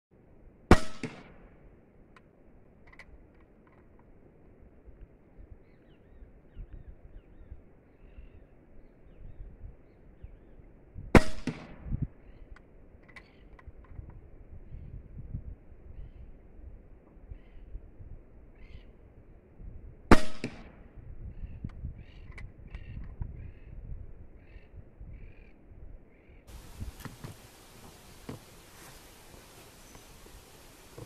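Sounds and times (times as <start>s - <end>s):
air rifle shots: 0.7s - 1.5s, 11.1s - 12.0s, 20.1s - 20.8s
faint bird chirps: 5.4s - 10.7s, 15.8s - 16.4s, 17.2s - 17.9s, 18.5s - 19.1s, 21.2s - 26.5s, 29.7s - 30.4s.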